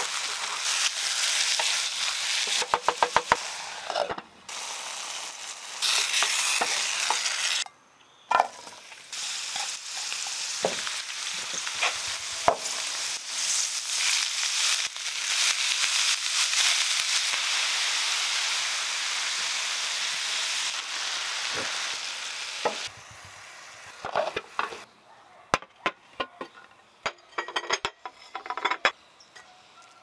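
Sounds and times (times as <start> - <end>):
greens sizzling in oil: 0.0 - 7.7, 8.3 - 24.8
plates clinking on glass table: 26.2 - 29.0.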